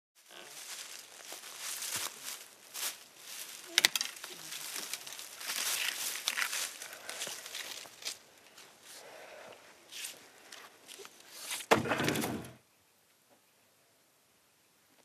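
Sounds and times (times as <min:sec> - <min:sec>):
dry leaves and twigs rustling: 0:00.2 - 0:09.2
wood snapping: 0:03.7 - 0:06.6.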